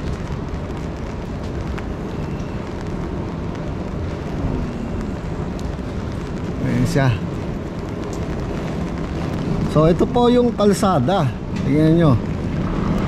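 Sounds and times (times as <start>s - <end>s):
low street rumble: 0.0s - 13.0s
rain hiss: 0.0s - 13.0s.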